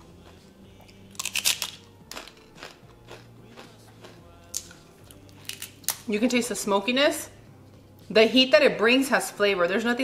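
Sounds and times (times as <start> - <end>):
chewing: 0.0 - 5.7
chip crunching: 0.0 - 6.1.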